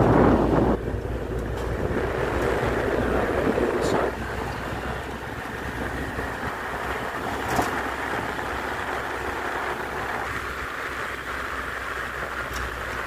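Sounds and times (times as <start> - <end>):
vehicle road and wind noise: 0.0 - 13.0.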